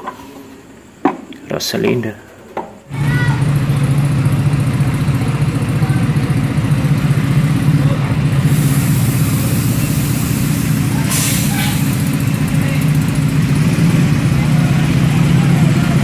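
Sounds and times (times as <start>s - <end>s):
diesel coach engine running: 2.9s - 16.0s
short burst of hiss: 8.4s - 12.1s.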